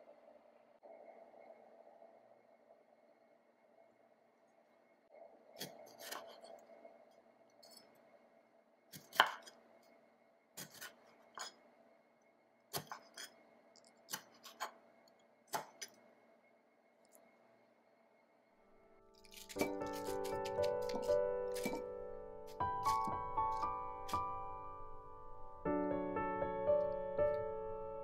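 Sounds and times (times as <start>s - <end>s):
faint steady hum: 0.0s - 28.0s
knife chopping on wooden board: 9.0s - 9.5s, 12.7s - 13.3s.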